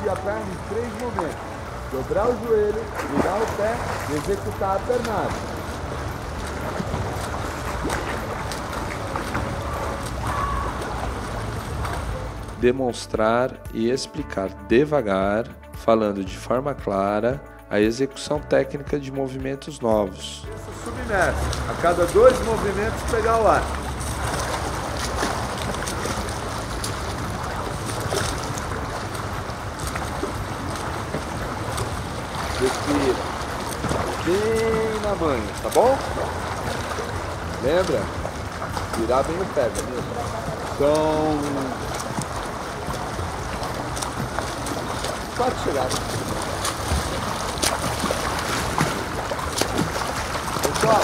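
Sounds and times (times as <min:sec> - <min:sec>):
pool water splashing: 0:00.0 - 0:51.0.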